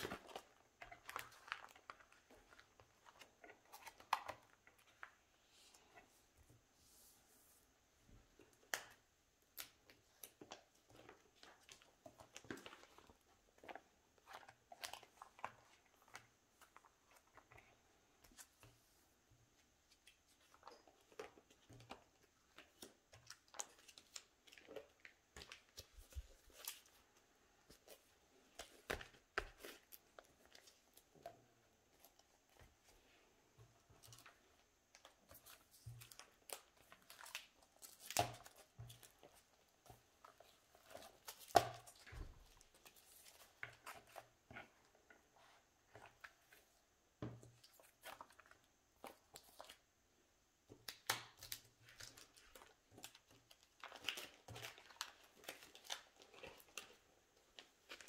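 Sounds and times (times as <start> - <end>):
cards in plastic sleeves crinkling: 0.0 - 5.2, 50.8 - 58.0.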